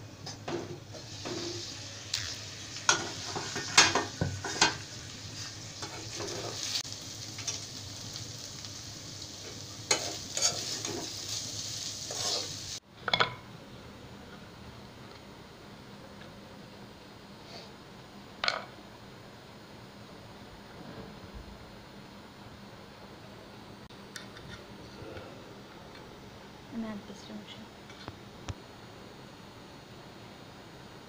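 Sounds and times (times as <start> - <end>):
potatoes sizzling in oil: 0.5 - 12.8
spatula scraping and knocking pan: 2.9 - 4.8, 5.8 - 6.7, 9.9 - 11.2.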